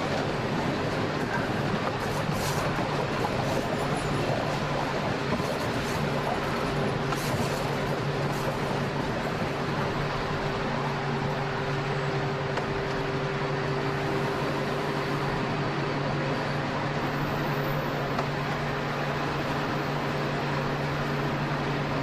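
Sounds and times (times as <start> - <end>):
train wheels rumbling on rails: 0.0 - 22.0.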